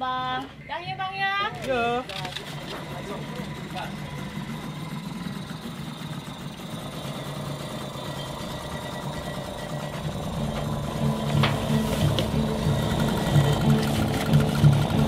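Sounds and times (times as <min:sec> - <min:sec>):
small outboard motor running: 0:00.3 - 0:15.0.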